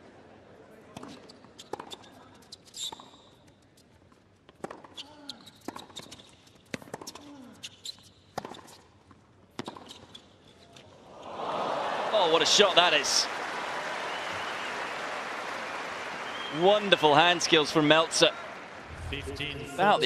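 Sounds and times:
shoe squeak: 1.1s - 4.0s, 4.9s - 9.0s, 9.6s - 10.8s.

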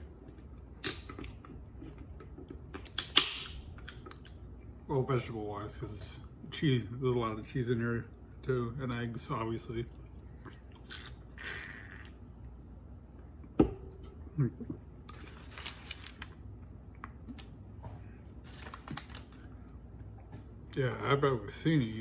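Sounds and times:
crisp rustling: 15.1s - 16.4s, 18.4s - 19.5s.

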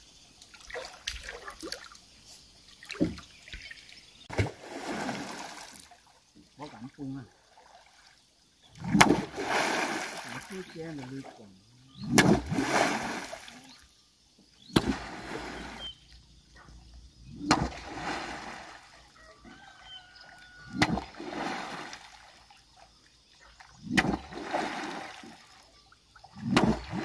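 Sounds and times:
water splashing: 0.4s - 13.8s, 14.7s - 16.0s, 17.3s - 23.0s, 23.6s - 27.0s
pole smacking water: 2.8s - 3.7s, 8.8s - 10.7s, 12.0s - 13.5s, 14.7s - 15.6s, 17.4s - 18.6s, 20.7s - 22.2s, 23.8s - 25.4s, 26.4s - 27.0s.

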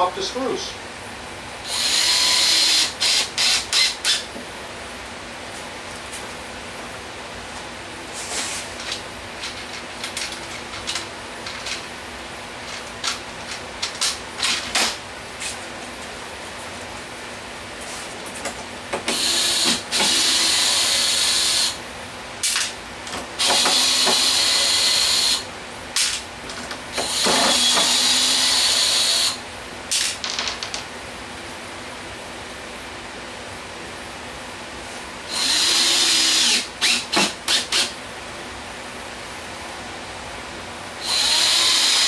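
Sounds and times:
cordless drill driving screws: 1.7s - 4.2s, 19.1s - 21.8s, 23.4s - 25.4s, 27.0s - 29.4s, 35.3s - 37.9s, 41.0s - 42.0s.

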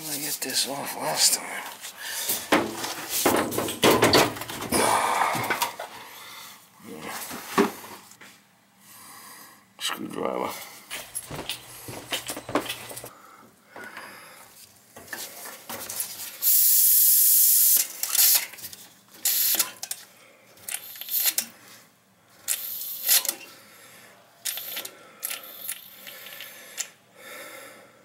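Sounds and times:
air hissing from valve: 16.4s - 18.4s
valve spitting: 16.4s - 18.4s, 19.2s - 19.6s, 20.8s - 21.5s, 22.5s - 23.3s.

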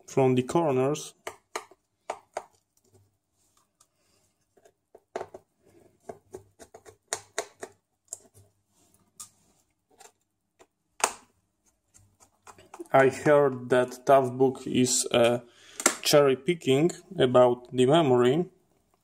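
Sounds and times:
fingers handling screws and plastic cover: 11.7s - 12.9s.

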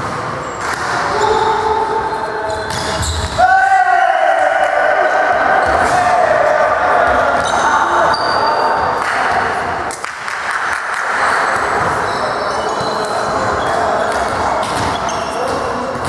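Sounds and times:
crowd and player chatter: 0.0s - 16.0s
shoes squeaking on court: 0.4s - 3.4s, 7.4s - 8.6s, 11.8s - 16.0s.

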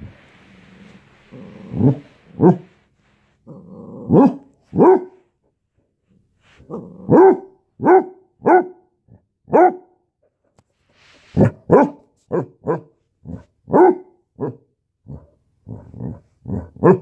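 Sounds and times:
puppy growling: 0.6s - 2.7s, 3.5s - 4.5s
puppy barking: 4.1s - 5.2s, 7.1s - 8.9s, 9.5s - 10.0s, 11.4s - 14.6s, 16.8s - 17.0s.

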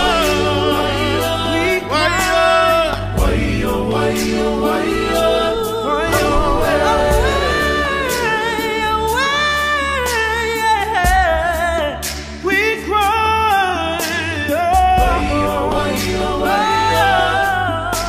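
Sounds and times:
low sustained bass: 0.0s - 11.0s, 14.8s - 18.0s
slow song with singing voices: 0.0s - 18.0s.

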